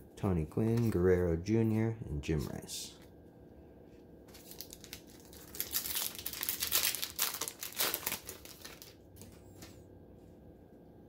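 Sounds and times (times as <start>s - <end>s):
foil wrapper crinkling: 4.3s - 9.7s.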